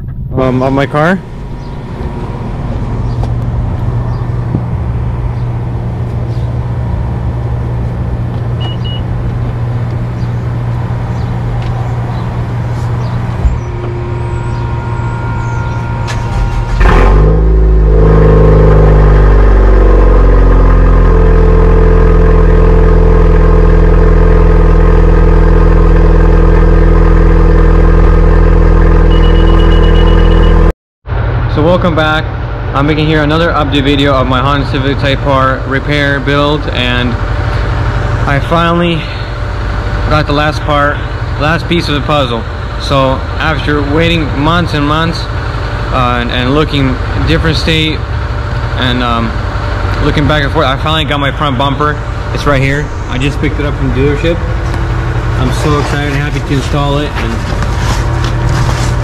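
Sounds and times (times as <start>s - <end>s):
steady background hum: 0.0s - 16.8s, 31.1s - 59.0s
car engine cold-starting and idling: 0.0s - 30.7s, 32.8s - 59.0s.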